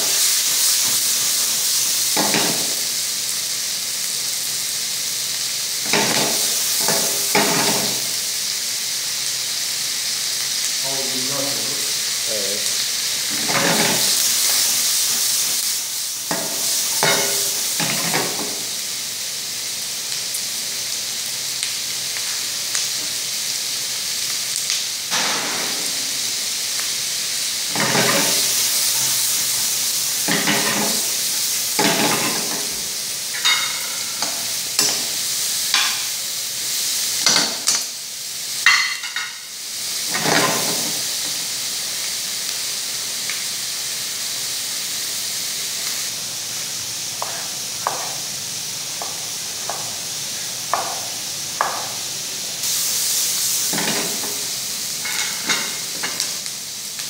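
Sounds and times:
food sizzling in a wok: 0.0s - 57.0s
food being stirred and scraped: 27.7s - 35.0s.

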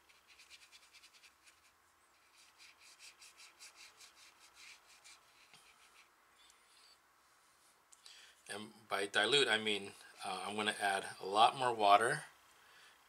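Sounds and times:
brush stroking on paper: 0.0s - 6.1s.

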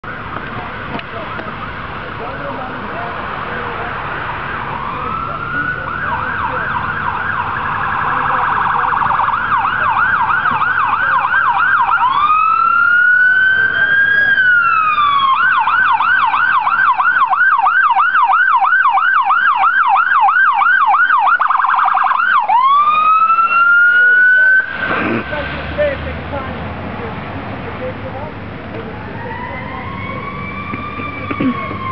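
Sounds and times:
electronic siren yelping and wailing: 4.4s - 24.8s, 29.0s - 31.9s.

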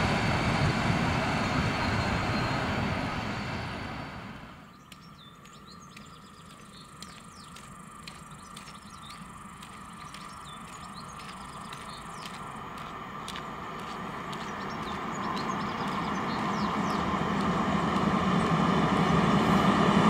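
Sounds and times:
distant freight train rumble: 0.0s - 20.0s
small birds chirping: 4.6s - 17.6s.

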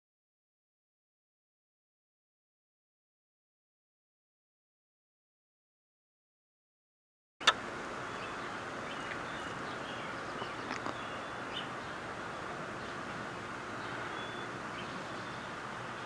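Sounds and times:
faint bird chirps: 7.4s - 13.1s, 13.7s - 16.0s
steady outdoor hiss: 7.4s - 16.0s.

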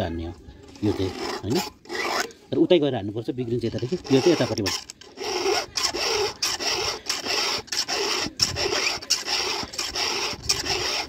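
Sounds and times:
file rasping on saw chain: 0.8s - 2.3s, 3.8s - 11.0s.

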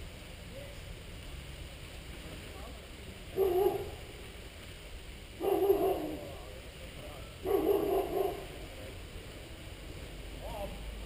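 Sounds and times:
dog barking: 3.3s - 4.0s, 5.4s - 6.2s, 7.4s - 8.5s.

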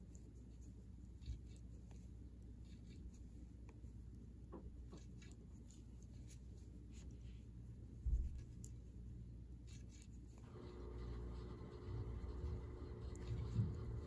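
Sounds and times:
yarn rustling: 0.0s - 14.0s
soft low thump: 8.0s - 8.5s.

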